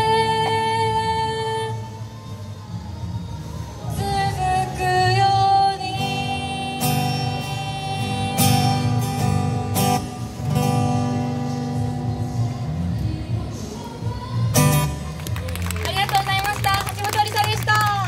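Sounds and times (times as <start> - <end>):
acoustic guitar strumming: 4.8 - 12.9.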